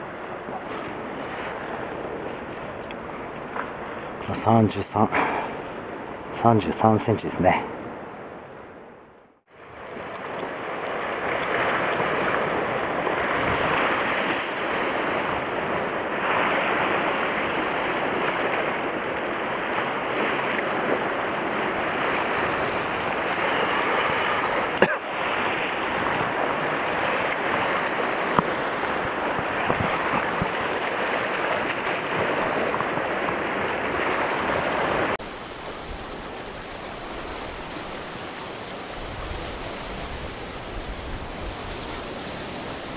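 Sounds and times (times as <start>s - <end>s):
sea surf breaking on rocks: 9.5s - 42.9s.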